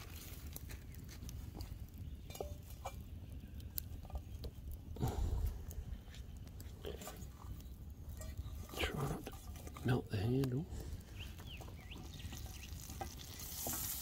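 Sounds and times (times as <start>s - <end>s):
campfire crackling: 0.0s - 14.0s.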